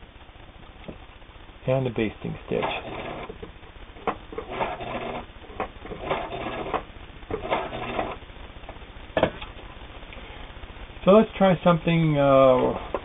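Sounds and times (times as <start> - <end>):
sewing machine stitching: 2.5 - 3.4, 4.0 - 8.2.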